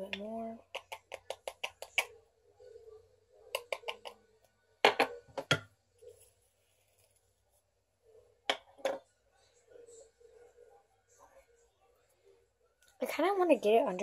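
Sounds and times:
makeup brush tapping a jar: 0:00.1 - 0:02.1, 0:03.6 - 0:04.2.

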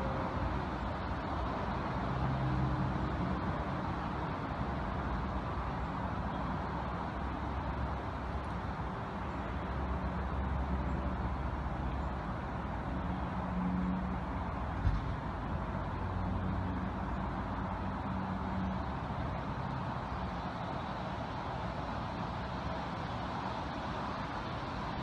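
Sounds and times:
highway traffic: 0:00.0 - 0:25.0.

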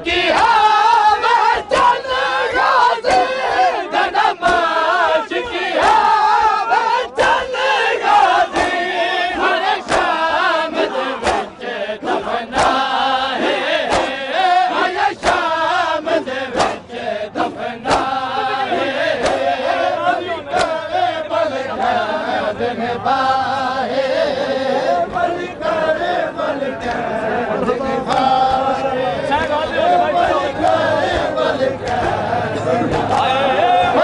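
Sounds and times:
men chanting in unison: 0:00.0 - 0:34.0
hands slapping chests: 0:08.5 - 0:08.8, 0:09.8 - 0:10.2, 0:11.2 - 0:11.5, 0:12.5 - 0:12.9, 0:13.8 - 0:14.2, 0:15.2 - 0:15.5, 0:16.6 - 0:16.8, 0:17.8 - 0:18.2, 0:19.2 - 0:19.4.

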